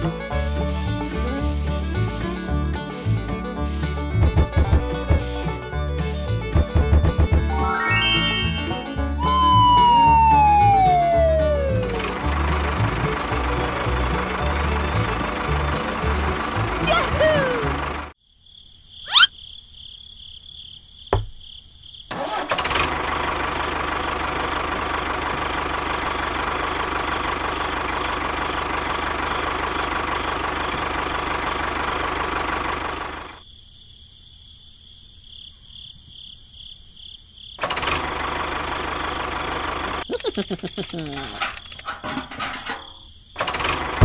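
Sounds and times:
vehicle engine running: 0:00.0 - 0:07.7, 0:09.0 - 0:18.2, 0:22.6 - 0:33.4, 0:37.6 - 0:42.7, 0:43.4 - 0:44.0.

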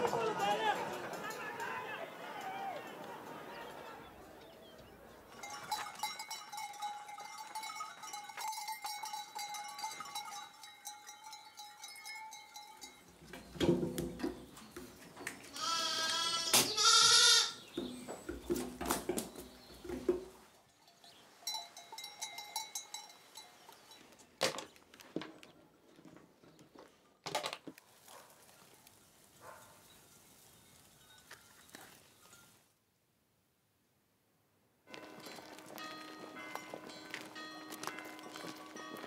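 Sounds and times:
goat bells ringing: 0:00.0 - 0:24.4, 0:29.4 - 0:32.6, 0:34.9 - 0:39.0
goats bleating: 0:15.5 - 0:17.6.

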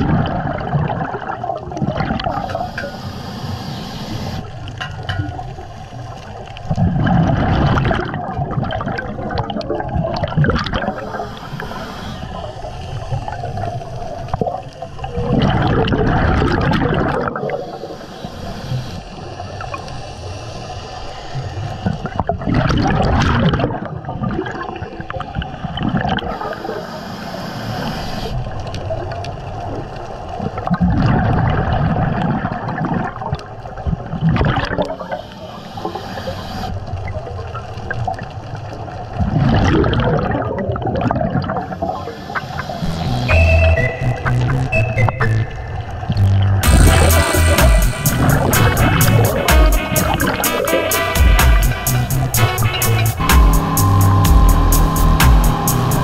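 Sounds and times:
exhaled bubbles gushing: 0:00.0 - 0:03.0, 0:04.3 - 0:18.0, 0:21.4 - 0:26.8, 0:28.3 - 0:36.0, 0:36.6 - 0:47.6, 0:48.2 - 0:51.0
hissing regulator inhale: 0:02.4 - 0:04.7, 0:10.9 - 0:15.1, 0:17.4 - 0:22.2, 0:26.4 - 0:28.5, 0:35.0 - 0:36.9, 0:41.6 - 0:42.9.

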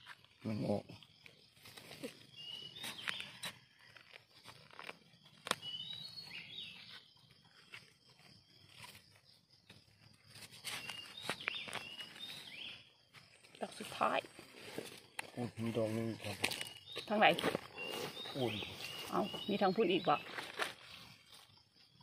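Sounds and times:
bird chirping: 0:00.0 - 0:04.7, 0:05.3 - 0:14.2, 0:15.1 - 0:22.0
blade digging soil: 0:01.6 - 0:08.0, 0:10.1 - 0:12.6, 0:14.5 - 0:21.5.

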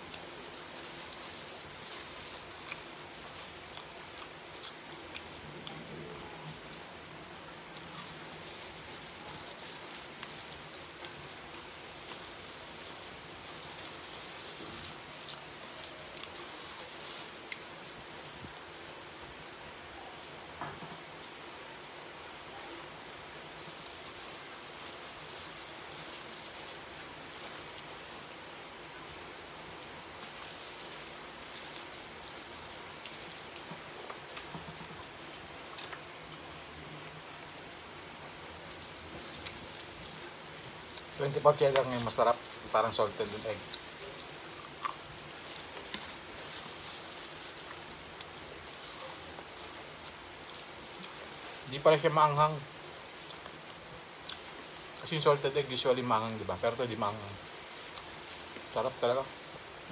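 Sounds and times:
mouth clicks and crackles: 0:00.0 - 0:06.8
chewing food: 0:00.0 - 0:19.0, 0:23.4 - 0:36.5, 0:38.2 - 0:59.9
plastic glove crinkling: 0:00.0 - 0:21.0, 0:22.5 - 0:36.4, 0:37.8 - 0:59.9
steady background hiss: 0:00.0 - 0:59.9.

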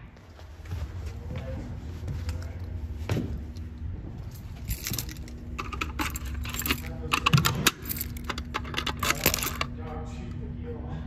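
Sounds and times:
low steady hum: 0:00.0 - 0:11.0
keys jangling: 0:04.3 - 0:09.7.

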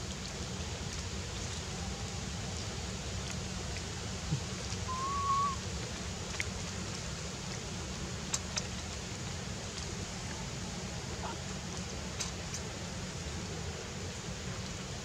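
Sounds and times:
outdoor hiss: 0:00.0 - 0:15.0
whistle-like animal call: 0:04.9 - 0:05.6.

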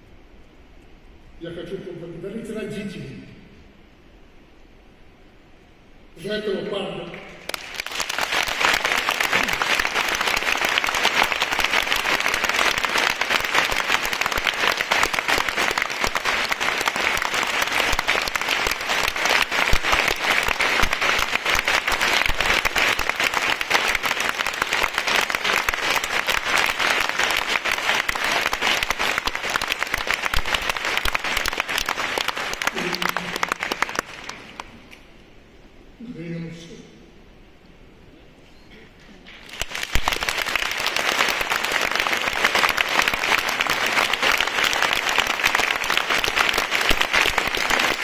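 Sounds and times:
audience applauding: 0:07.4 - 0:34.8, 0:39.3 - 0:48.0.

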